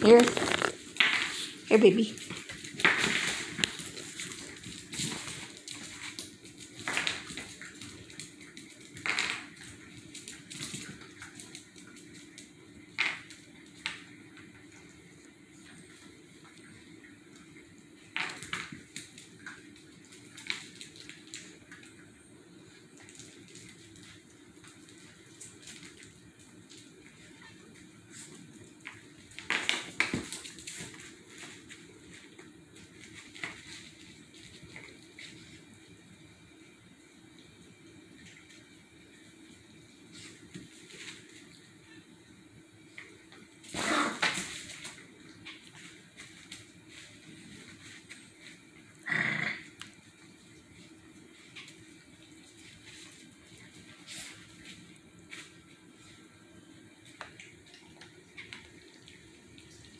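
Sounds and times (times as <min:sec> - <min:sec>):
training pad crinkling: 0:00.0 - 0:00.9
claws clicking on tile floor: 0:00.0 - 0:01.6, 0:02.2 - 0:14.2, 0:28.8 - 0:31.8
dogs scuffling on tile floor: 0:00.0 - 0:22.1, 0:22.7 - 0:36.1, 0:38.1 - 0:42.0, 0:42.9 - 0:59.9.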